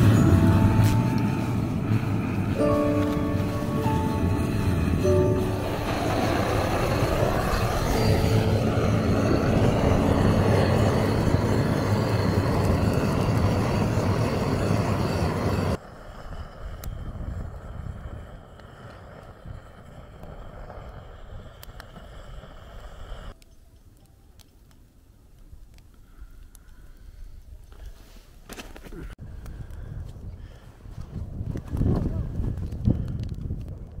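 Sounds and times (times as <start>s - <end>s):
quiet low rush: 0.0s - 19.2s
gas torch flame rushing: 3.3s - 23.4s.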